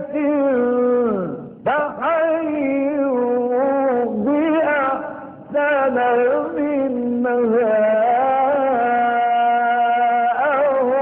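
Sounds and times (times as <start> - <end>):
man chanting melodically: 0.0 - 11.0.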